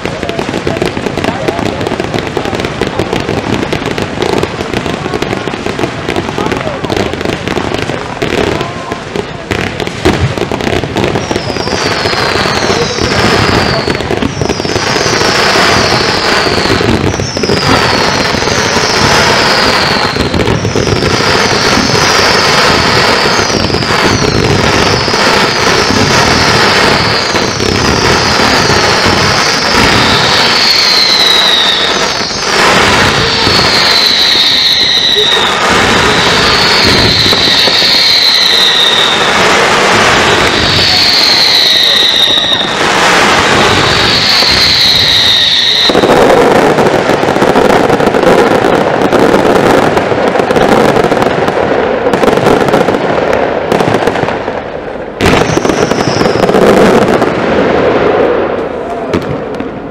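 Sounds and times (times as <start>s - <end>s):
fireworks bangs and crackling: 0.0s - 59.9s
falling firework whistles: 11.0s - 46.9s, 55.2s - 57.3s.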